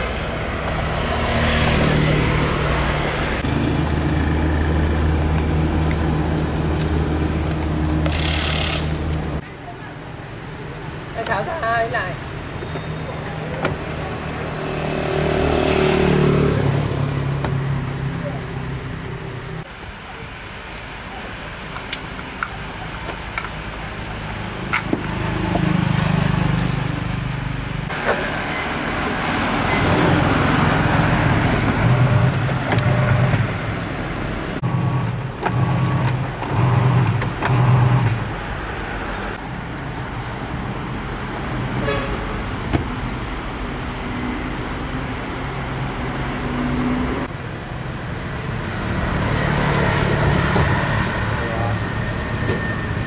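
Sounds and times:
road traffic passing: 0.0 - 53.0
short horn toots: 41.8 - 42.3.

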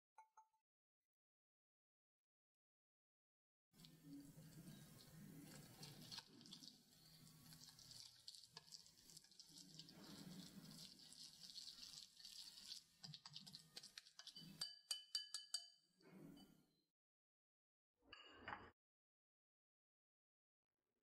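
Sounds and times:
whisk stirring batter: 3.8 - 15.7
whisk tapping glass bowl: 13.0 - 15.8.

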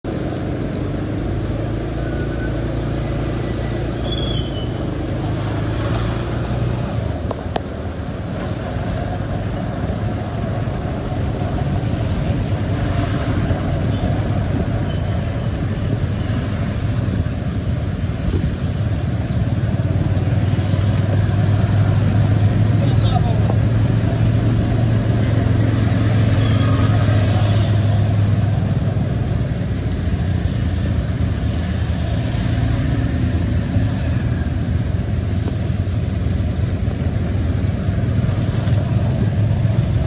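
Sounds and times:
road traffic rumble: 0.0 - 40.0.

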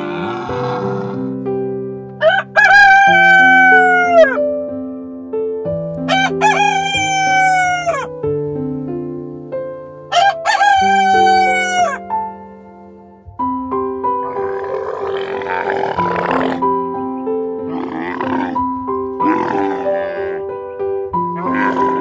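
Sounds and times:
soft keyboard music: 0.0 - 22.0
rooster crowing: 2.2 - 4.4, 6.1 - 8.1, 10.1 - 12.0.

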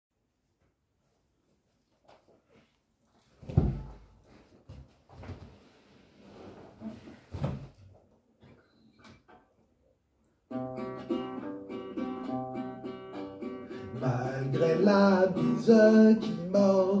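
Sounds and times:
rustling and knocks of person sitting: 1.5 - 5.9, 6.5 - 8.6.

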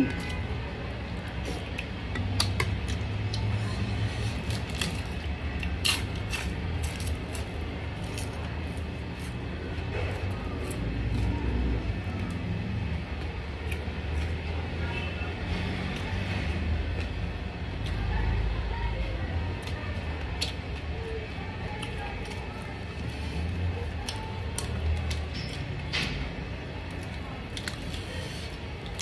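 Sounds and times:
person chewing: 4.3 - 11.3, 13.6 - 14.4, 26.9 - 29.0.

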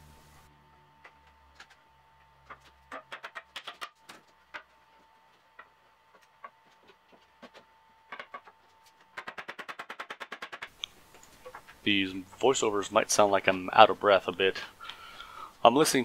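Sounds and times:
wooden parts knocking and clacking: 1.0 - 4.8, 5.5 - 11.8.

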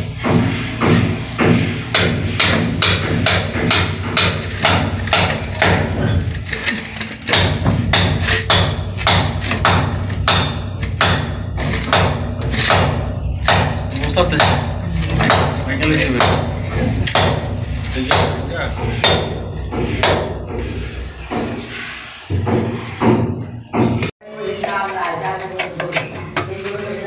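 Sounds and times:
percussive beat: 7.3 - 21.7
held low bass: 7.4 - 22.5.

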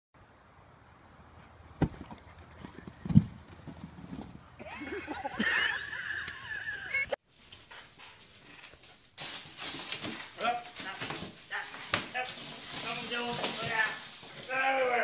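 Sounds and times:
dog colliding with exercise ball: 1.8 - 2.2.

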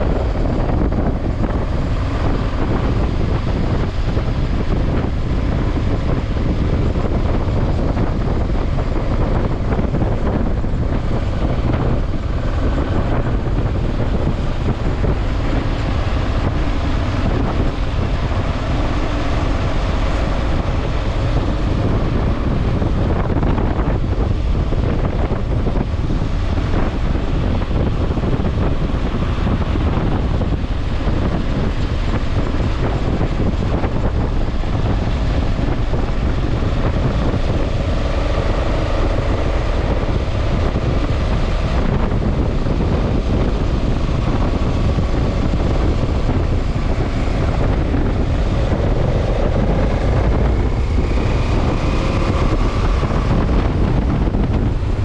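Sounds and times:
wind noise on microphone: 0.0 - 55.0.

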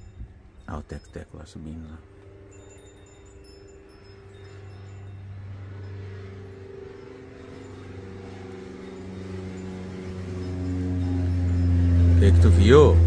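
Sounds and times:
high tinkling chimes: 0.0 - 13.0
propeller plane droning: 0.0 - 13.0.

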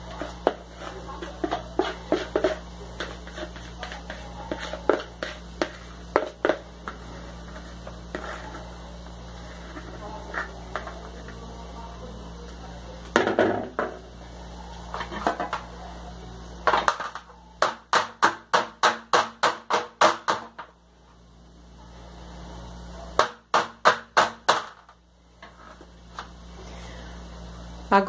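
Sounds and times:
baking pan rapping on countertop: 0.0 - 8.6.

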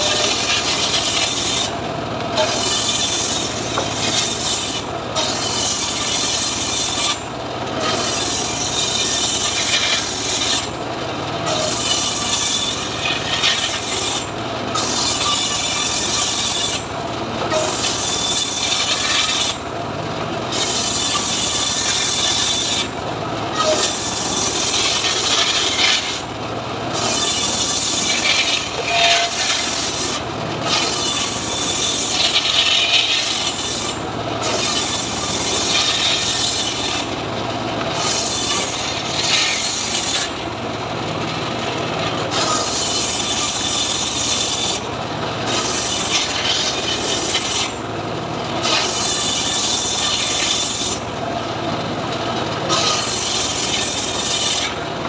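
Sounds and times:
circular saw cutting wood: 0.0 - 40.5, 41.2 - 51.4, 52.2 - 54.8.

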